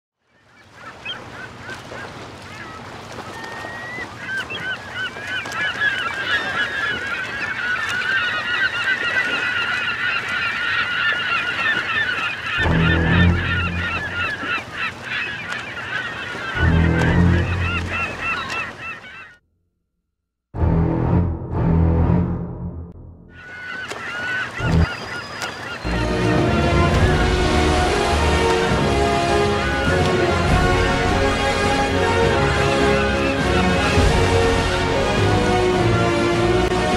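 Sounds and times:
flock of birds calling: 0.4 - 19.4, 23.3 - 36.9
long deep low sounds: 20.6 - 23.3.

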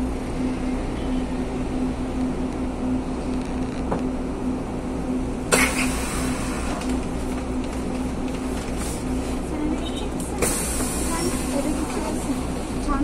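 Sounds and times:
bus engine hum with whine: 0.0 - 13.0
compressed air hiss: 10.4 - 11.4.

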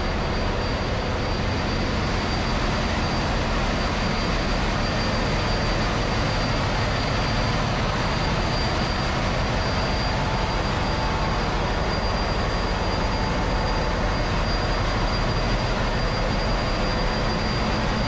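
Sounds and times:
diesel generators running: 0.0 - 18.0
high whine: 0.0 - 18.0.

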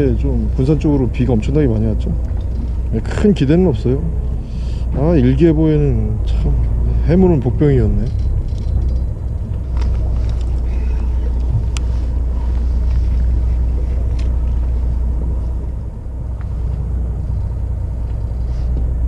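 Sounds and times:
boat engine rumbling: 0.0 - 19.0.

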